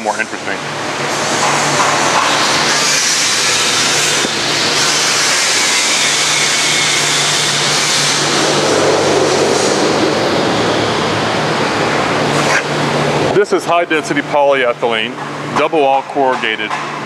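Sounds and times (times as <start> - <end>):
dust collector rushing noise: 1.6 - 13.4
bandsaw motor hum: 1.8 - 13.3
rough low rushing: 7.0 - 13.4.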